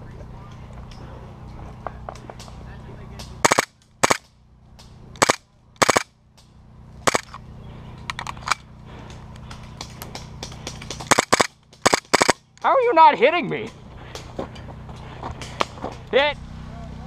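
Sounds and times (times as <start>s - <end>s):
low hum: 0.0s - 12.7s
airsoft pistol shots: 3.4s - 4.2s, 5.2s - 6.1s, 7.1s - 7.3s, 11.1s - 12.4s.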